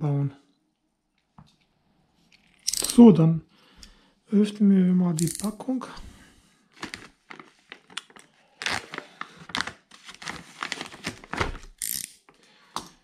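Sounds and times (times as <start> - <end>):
plastic bag crinkling: 6.8 - 11.6.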